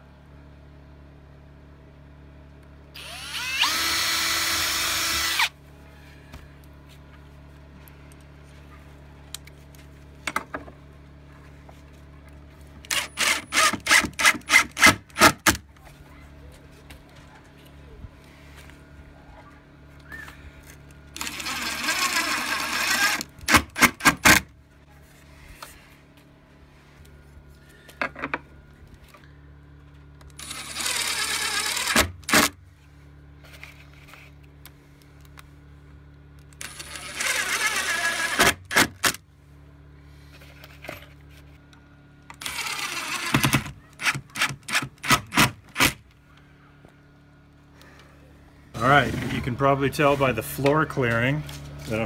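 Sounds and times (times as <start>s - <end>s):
cordless drill driving screws: 3.0s - 5.5s, 12.8s - 15.6s, 21.2s - 24.4s, 30.3s - 32.6s, 36.5s - 39.2s, 42.3s - 46.0s.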